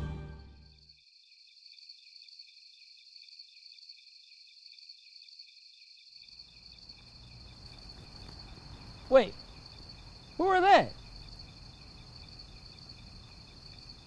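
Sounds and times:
crickets chirping: 0.5s - 14.0s
low background hiss: 6.2s - 14.0s.

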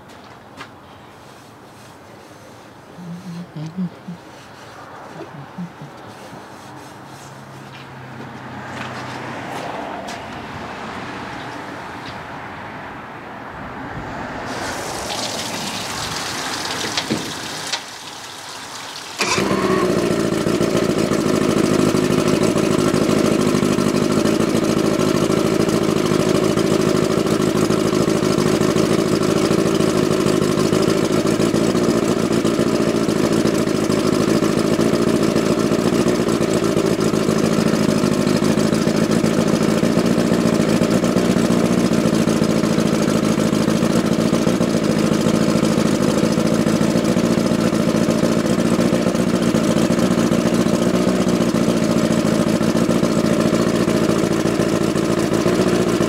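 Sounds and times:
outboard motor idling: 1.2s - 7.8s, 14.5s - 56.0s.

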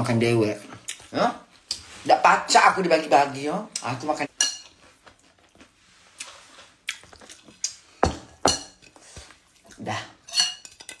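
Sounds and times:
ceramic dishes clinking: 10.3s - 11.0s.

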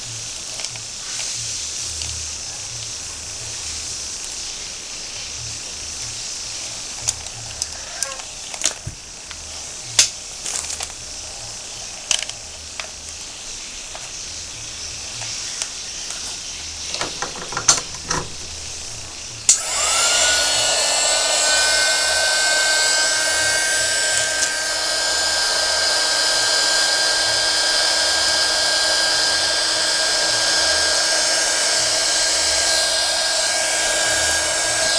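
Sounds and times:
plastic packaging rustling: 7.0s - 11.2s
heat gun fan blowing: 16.7s - 34.9s.

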